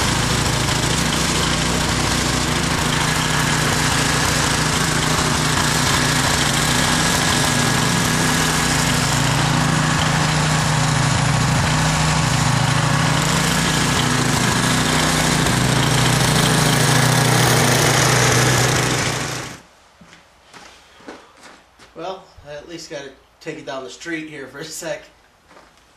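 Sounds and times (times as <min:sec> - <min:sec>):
snowblower engine running: 0:00.0 - 0:19.6.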